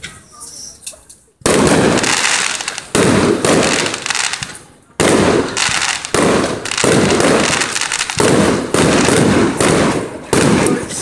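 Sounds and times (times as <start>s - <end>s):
fireworks bangs with crackle: 1.4s - 11.0s.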